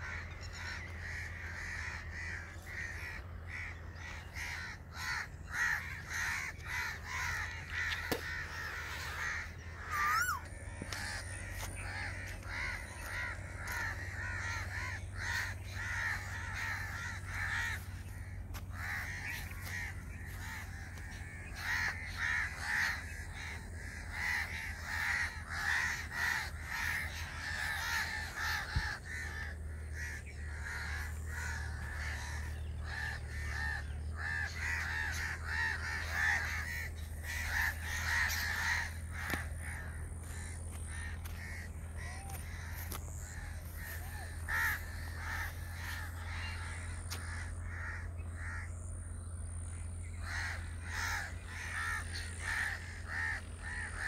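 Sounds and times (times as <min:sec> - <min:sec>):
crows cawing: 0:00.0 - 0:54.0
steady low rumble: 0:00.0 - 0:54.0.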